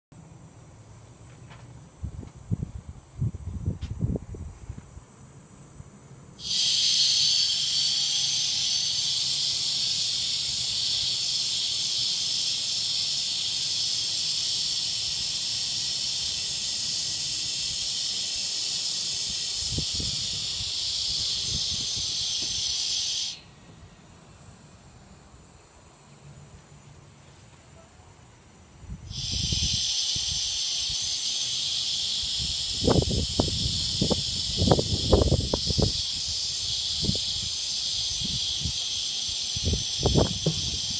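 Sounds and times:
compressed air hissing: 6.4s - 23.5s, 28.9s - 40.9s.

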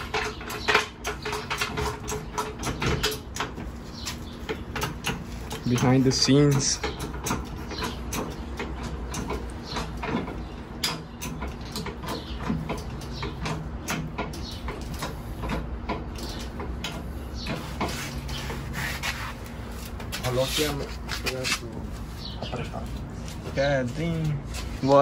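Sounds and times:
steady low hum: 0.0s - 25.0s.

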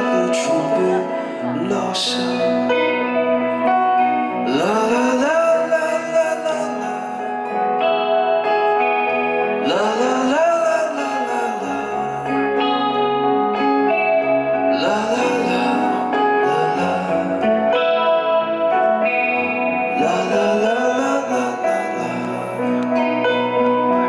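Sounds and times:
acoustic guitar: 0.0s - 24.0s
bass: 0.0s - 24.0s
electric guitar lead bending notes: 0.0s - 24.0s.

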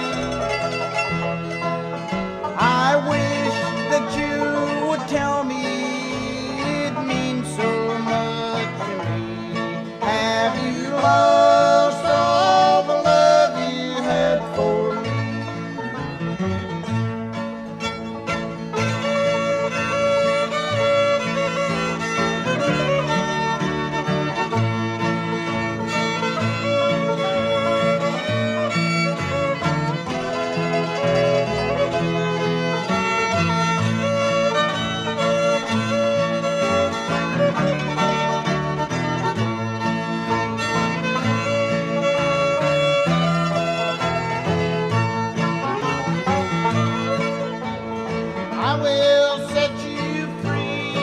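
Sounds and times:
bluegrass band playing: 0.0s - 51.0s
fiddle: 0.0s - 51.0s.

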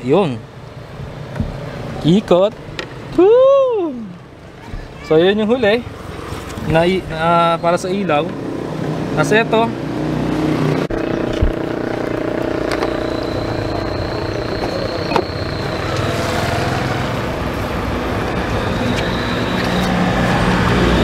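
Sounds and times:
engine droning: 5.8s - 21.0s.

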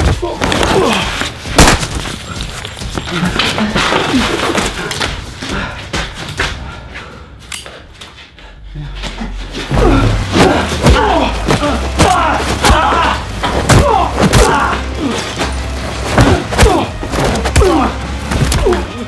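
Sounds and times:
fighters grunting and shouting: 0.0s - 1.4s, 8.9s - 19.0s.

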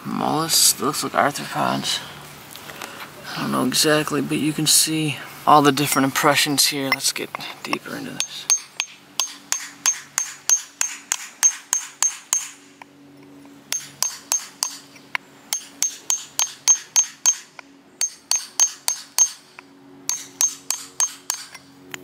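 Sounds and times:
hammer tapping on shale: 7.7s - 12.6s, 13.7s - 14.9s, 15.5s - 19.4s, 20.1s - 22.0s.

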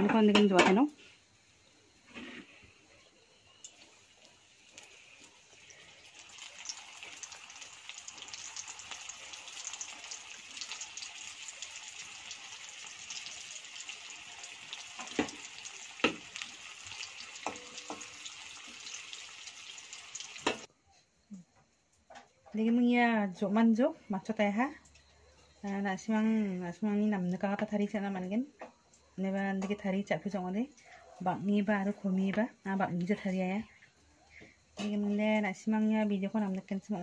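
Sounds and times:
fish sizzling in hot oil: 3.4s - 20.7s.

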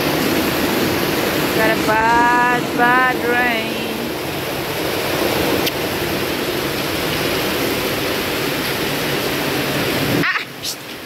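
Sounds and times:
heavy rain: 0.0s - 11.0s
water pouring off roof: 4.1s - 10.3s.

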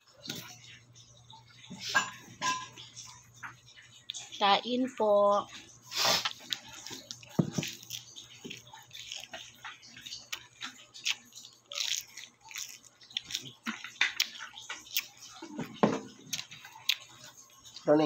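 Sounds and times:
chewing and crunching: 0.0s - 18.0s.

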